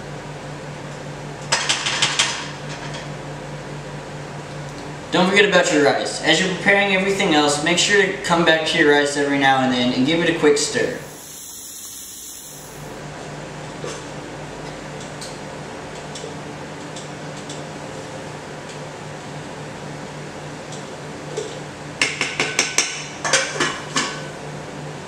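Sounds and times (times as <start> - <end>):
steady low hum: 2.5 - 22.0.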